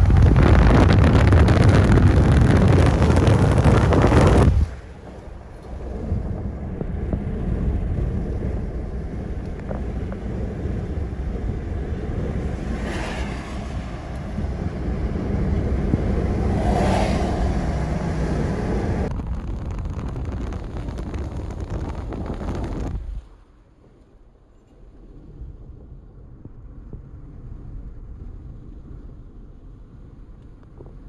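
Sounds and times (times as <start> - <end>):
wind rumbling on microphone: 0.0 - 31.0.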